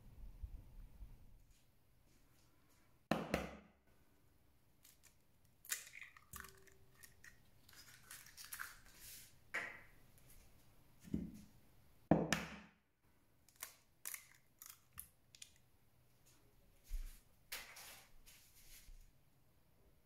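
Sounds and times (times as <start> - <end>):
eggshell crackling and snapping: 4.8 - 9.0, 13.4 - 15.7
egg cracking: 4.8 - 9.2, 13.4 - 15.7.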